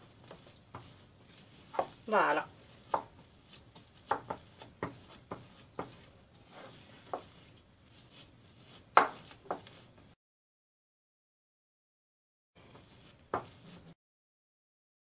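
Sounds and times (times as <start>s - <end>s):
spatula scraping glass bowl: 0.0s - 9.9s.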